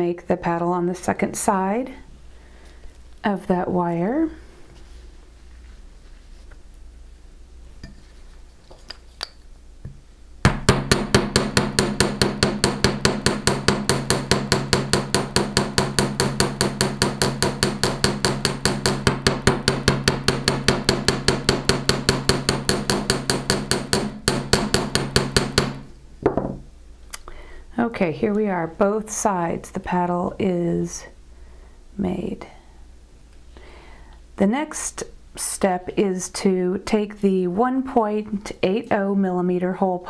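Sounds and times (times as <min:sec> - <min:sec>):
hammer striking metal rapidly: 0:10.5 - 0:25.8.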